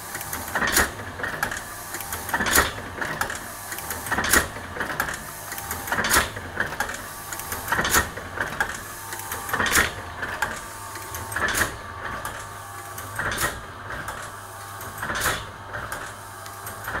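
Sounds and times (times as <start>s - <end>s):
printing press clacking: 0.0s - 17.0s
electric motor hum: 6.8s - 16.9s.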